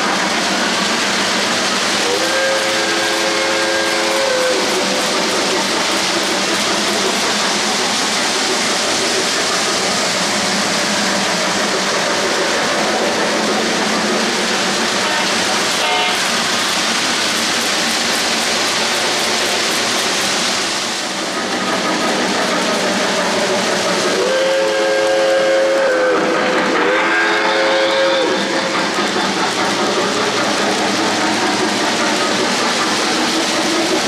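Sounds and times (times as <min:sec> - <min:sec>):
model train wheels rattling: 0:00.0 - 0:24.2, 0:27.3 - 0:34.0
train horn chord: 0:15.0 - 0:16.3.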